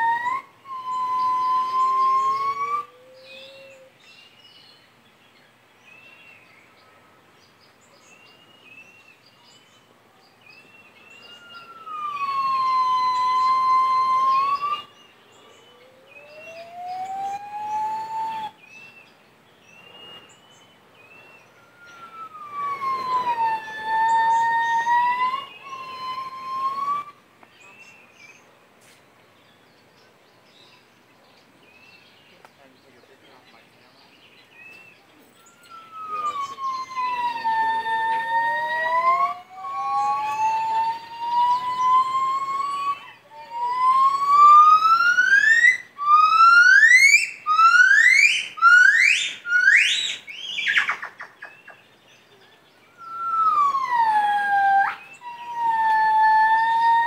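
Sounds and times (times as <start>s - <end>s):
gibbons whooping calls: 0.0s - 4.0s, 11.1s - 18.6s, 21.5s - 27.2s, 35.4s - 51.4s, 53.0s - 57.0s.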